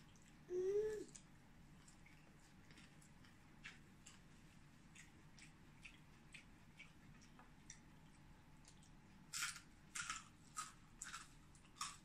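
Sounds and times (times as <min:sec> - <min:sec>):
crispy pork skin crunching: 0:08.8 - 0:12.0.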